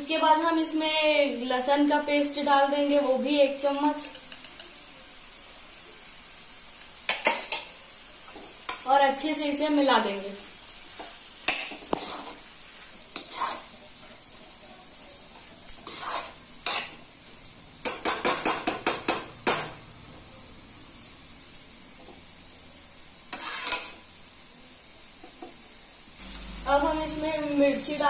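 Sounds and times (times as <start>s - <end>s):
vegetables sizzling: 0.0s - 28.0s
metal spatula scraping a pan: 11.4s - 19.6s, 23.3s - 24.1s.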